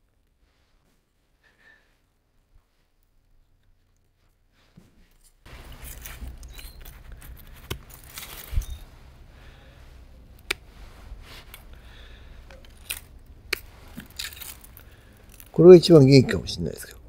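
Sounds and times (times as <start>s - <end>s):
dry foliage rustling: 5.1s - 16.8s.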